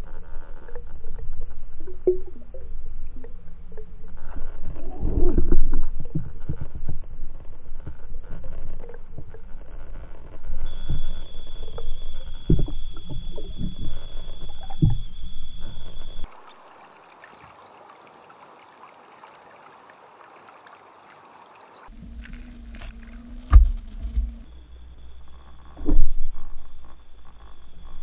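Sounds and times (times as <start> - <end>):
underwater thumps and rumble: 1.1 - 4.0, 4.7 - 7.3, 10.7 - 16.0, 21.9 - 24.5
faint high chirps: 17.4 - 18.2
loud thud: 23.5 - 24.4.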